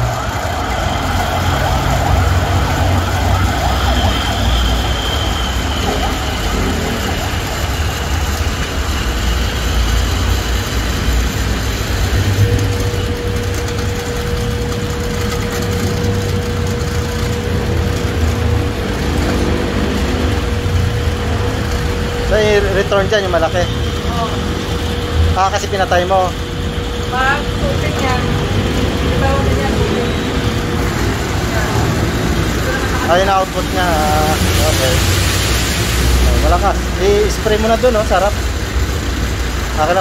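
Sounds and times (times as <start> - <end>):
pressure washer pump running: 0.0 - 40.0
steady whine: 0.0 - 40.0.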